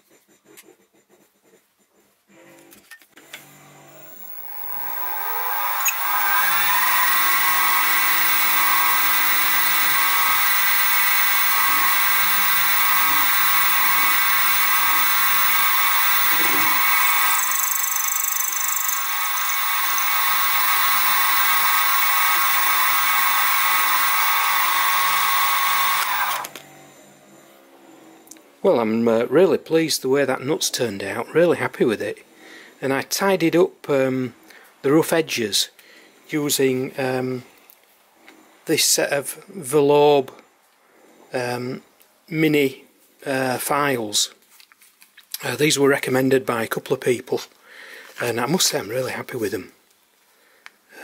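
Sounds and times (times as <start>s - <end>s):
mill motor whining: 2.5s - 27.6s
end mill cutting metal: 3.3s - 26.6s.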